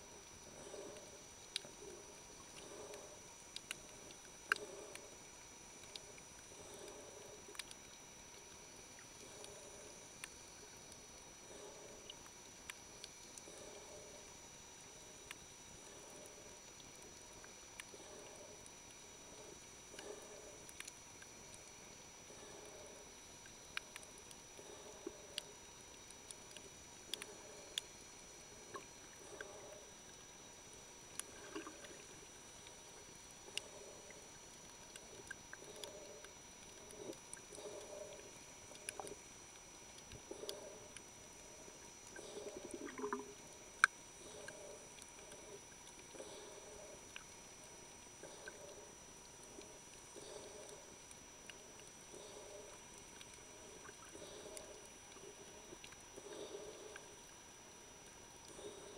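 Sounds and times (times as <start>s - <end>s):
sharp underwater clicks: 0.1s - 58.9s
muffled underwater swishes: 42.2s - 43.5s.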